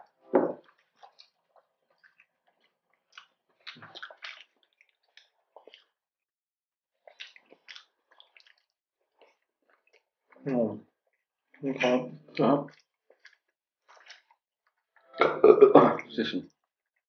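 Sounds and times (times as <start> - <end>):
wet chewing: 0.6 - 6.0, 7.0 - 11.6, 12.3 - 15.7
crunching bites of fried food: 0.8 - 6.0, 7.0 - 10.0, 12.7 - 14.4.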